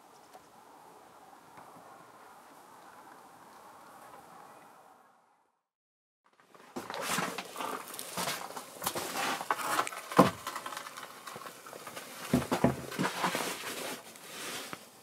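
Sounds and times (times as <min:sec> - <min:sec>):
wooden planks knocking together: 0:06.4 - 0:13.7
wooden boards scraping: 0:06.4 - 0:15.0.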